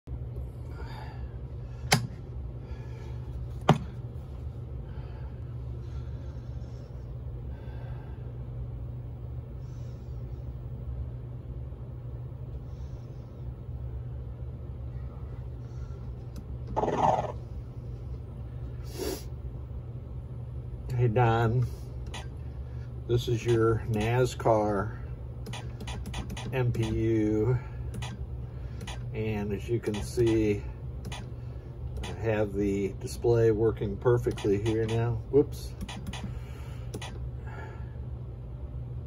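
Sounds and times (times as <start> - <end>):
low electrical hum: 0.1 - 39.0
sharp clicks: 25.4 - 27.0, 27.9 - 28.2, 28.8 - 29.1, 29.9 - 31.3, 34.3 - 35.1, 35.8 - 36.3, 36.9 - 37.2.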